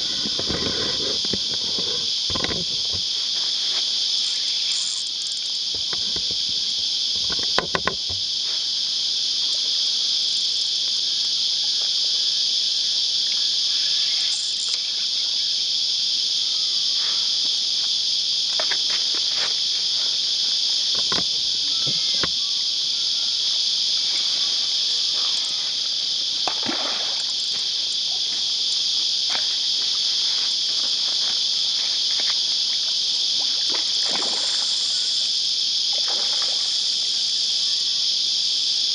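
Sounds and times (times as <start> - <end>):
cicadas buzzing: 0.0 - 38.9
fish splashing in water: 33.5 - 34.7.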